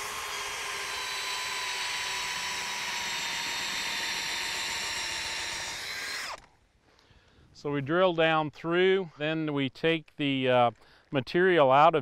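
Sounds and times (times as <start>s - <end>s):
cordless drill whining under load: 0.0s - 6.6s.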